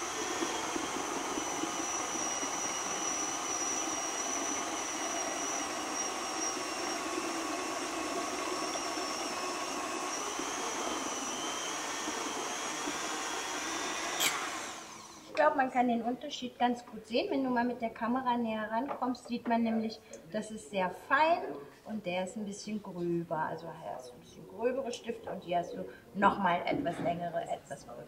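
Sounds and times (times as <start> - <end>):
food processor motor whining: 0.0 - 15.4.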